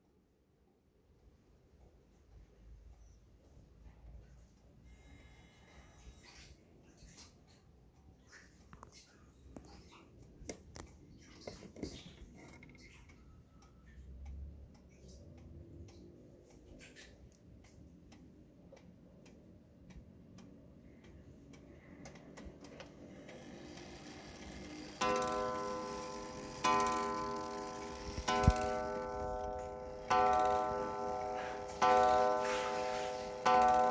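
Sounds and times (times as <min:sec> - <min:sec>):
wall clock ticking: 0:09.9 - 0:33.9.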